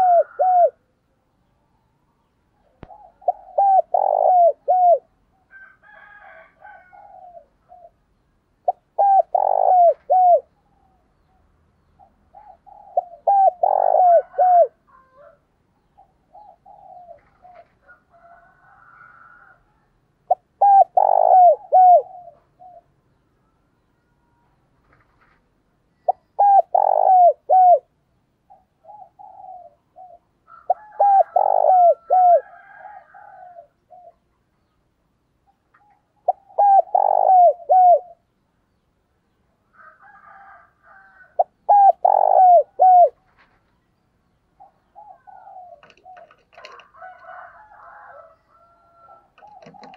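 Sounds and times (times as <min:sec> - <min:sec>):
dove cooing: 0:00.0 - 0:00.9, 0:02.6 - 0:08.0, 0:08.6 - 0:11.0, 0:12.0 - 0:19.7, 0:20.3 - 0:23.0, 0:26.0 - 0:34.3, 0:35.7 - 0:38.3, 0:40.0 - 0:43.5, 0:44.6 - 0:49.9
jumble of bird calls: 0:01.9 - 0:19.7, 0:20.3 - 0:38.9, 0:39.7 - 0:49.9.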